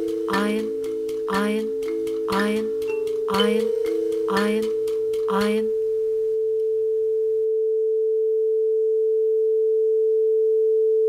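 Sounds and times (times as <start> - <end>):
steady electronic tone: 0.0 - 7.6
faint low background noise: 0.0 - 11.0.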